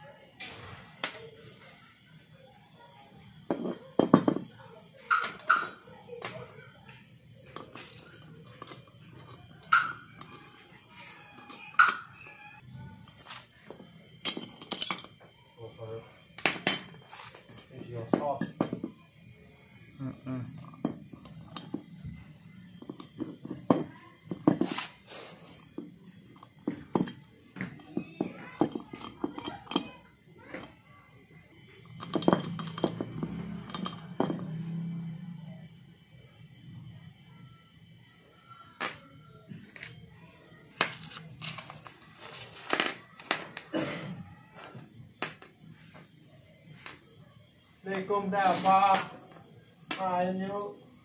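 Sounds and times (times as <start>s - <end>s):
metal parts clicking on concrete: 3.5s - 15.3s, 16.4s - 19.3s, 20.0s - 30.8s, 31.6s - 35.4s, 40.7s - 43.8s, 47.8s - 50.7s.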